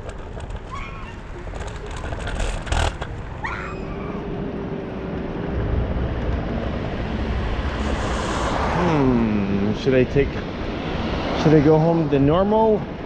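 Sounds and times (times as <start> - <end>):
wind and tyre rumble: 0.0 - 13.0
short squeaks: 0.4 - 4.2.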